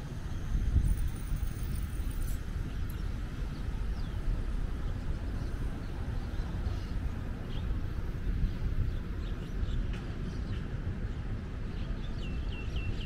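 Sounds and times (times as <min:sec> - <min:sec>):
wind on microphone: 0:00.0 - 0:09.9.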